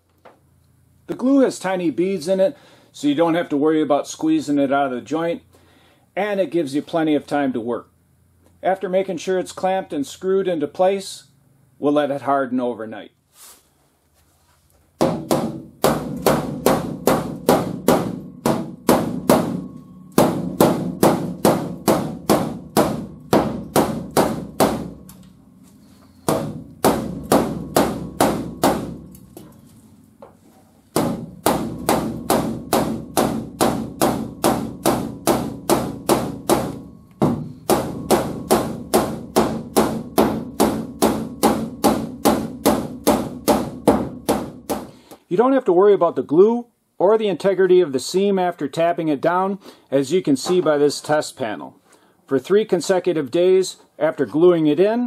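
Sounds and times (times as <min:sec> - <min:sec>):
hammer tapping sheet metal: 0:15.0 - 0:29.6, 0:30.9 - 0:45.0.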